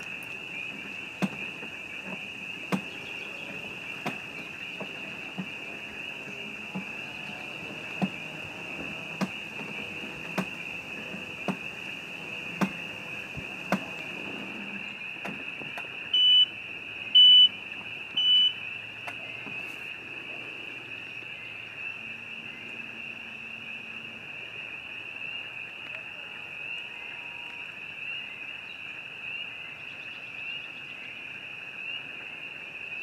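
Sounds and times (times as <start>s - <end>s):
sharp clicks: 0.0s - 14.5s
frogs trilling: 0.0s - 33.0s.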